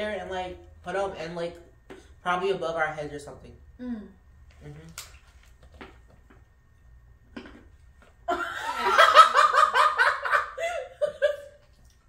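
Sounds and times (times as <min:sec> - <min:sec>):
person laughing hard: 0:08.3 - 0:11.5.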